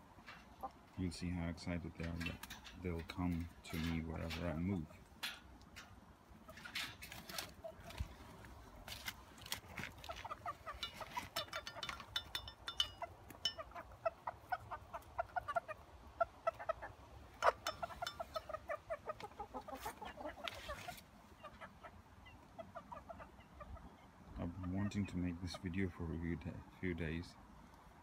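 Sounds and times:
hens clucking rapidly: 0:00.0 - 0:05.3, 0:06.3 - 0:08.5, 0:09.7 - 0:26.0
beaks tapping metal trowel: 0:10.7 - 0:13.7, 0:17.4 - 0:18.4.

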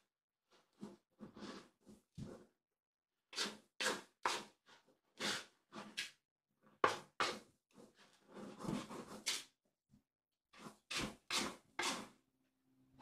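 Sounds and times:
kitten scratching in cat litter: 0:07.0 - 0:09.5, 0:10.6 - 0:12.2.

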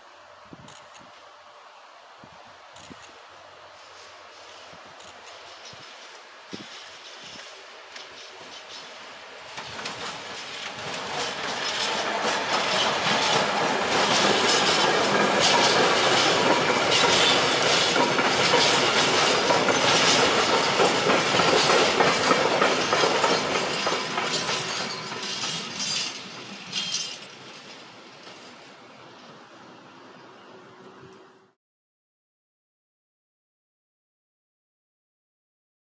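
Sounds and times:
freight train wheels clattering: 0:04.4 - 0:28.4.

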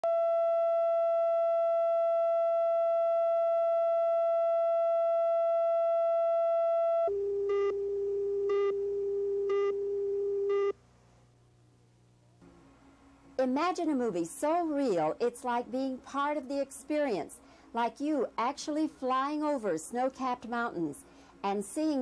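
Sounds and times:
steady electronic tone: 0:00.1 - 0:10.8.

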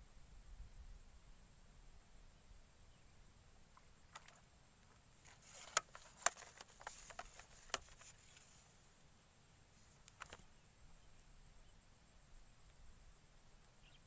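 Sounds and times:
short rustles: 0:05.2 - 0:08.8
sharp clicks: 0:10.0 - 0:10.5.

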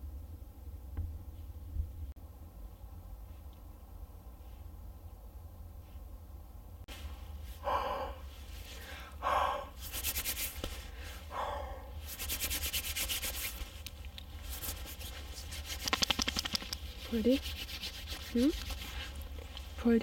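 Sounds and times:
palms rubbing together: 0:09.8 - 0:11.0, 0:12.0 - 0:19.8.

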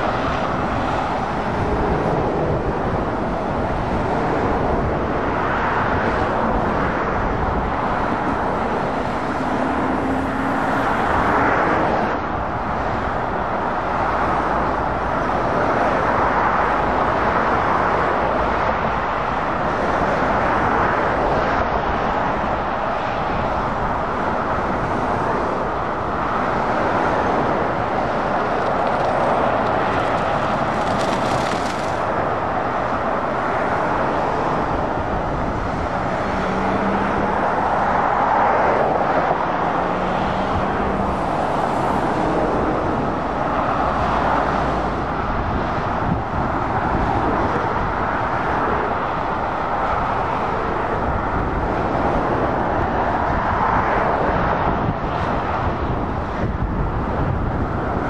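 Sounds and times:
tyre roar of passing traffic: 0:00.0 - 0:58.0.

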